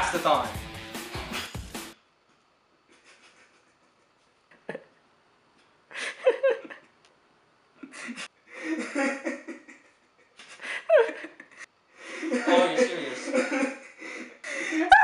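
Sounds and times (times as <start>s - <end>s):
young men laughing: 2.9s - 5.1s, 5.9s - 7.0s, 7.8s - 15.0s.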